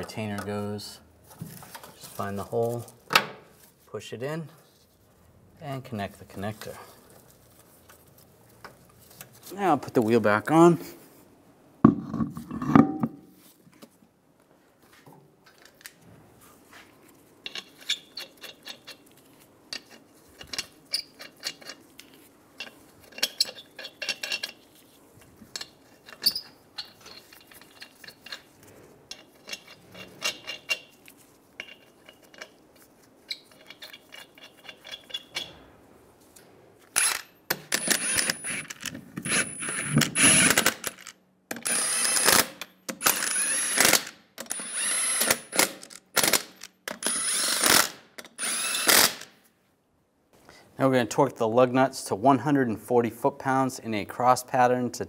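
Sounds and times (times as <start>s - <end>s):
impact wrench whining bursts: 36.9s - 41.0s, 41.6s - 49.3s.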